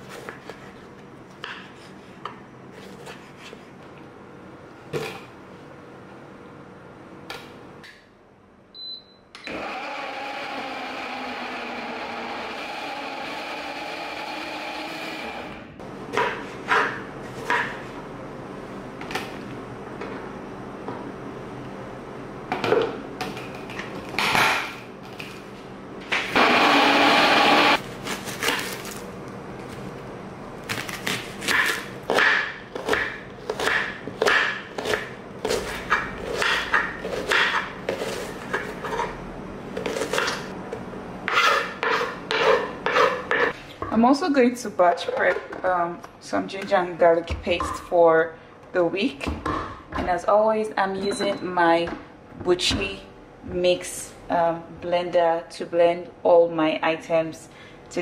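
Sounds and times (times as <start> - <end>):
electric blender running: 9.5 - 15.7, 26.3 - 27.8.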